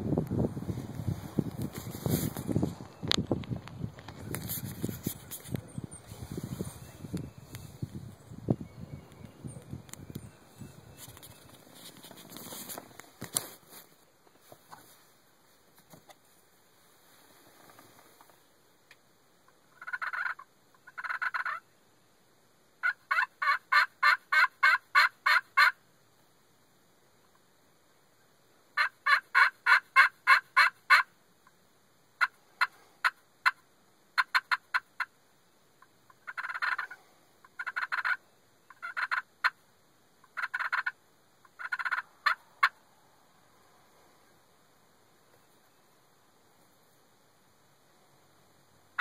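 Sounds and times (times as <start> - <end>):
soft turkey call clucks: 19.4 - 21.7, 22.8 - 25.8, 28.8 - 31.6, 32.2 - 35.2, 35.8 - 39.6, 40.2 - 42.8
turkey call yelps: 19.8 - 21.6, 22.8 - 25.8, 28.8 - 31.1, 36.2 - 39.6, 40.2 - 42.8.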